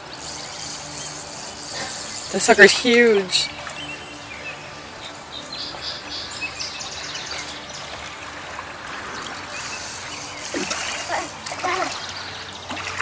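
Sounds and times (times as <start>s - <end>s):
quiet river background: 0.0s - 13.0s
small birds chirping: 0.0s - 13.0s
fish splashing water: 7.5s - 13.0s.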